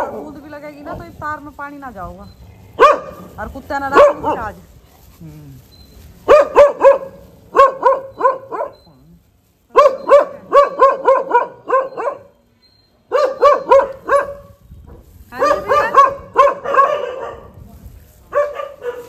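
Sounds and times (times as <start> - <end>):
dog barking rapidly: 2.8 - 4.6, 6.2 - 8.8, 9.7 - 12.3, 13.1 - 14.6, 15.4 - 17.5, 18.3 - 19.0.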